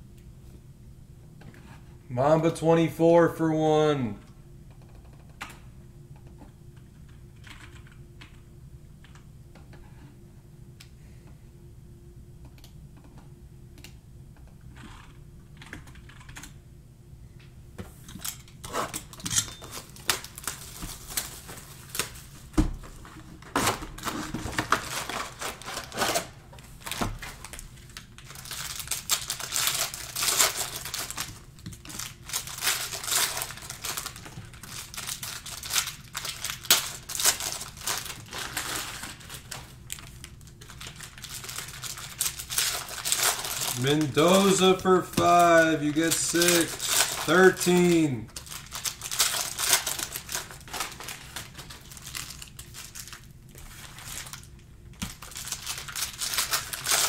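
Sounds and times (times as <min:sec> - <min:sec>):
plastic wrappers crinkling and tearing: 0:18.2 - 0:57.0
cards handled: 0:42.6 - 0:51.3.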